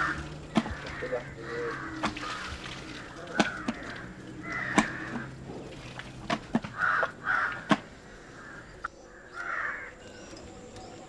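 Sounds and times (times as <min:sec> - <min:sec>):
crow cawing: 0:00.0 - 0:05.4, 0:06.7 - 0:10.0
elephant chewing cracks: 0:00.0 - 0:08.0.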